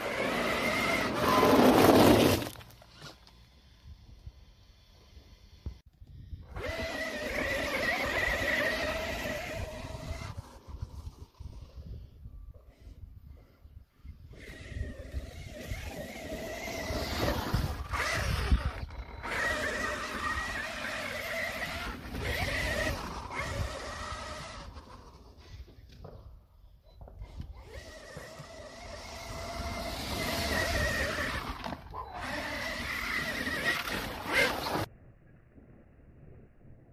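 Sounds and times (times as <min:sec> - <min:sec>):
electric rc truck whining: 0:00.0 - 0:34.9.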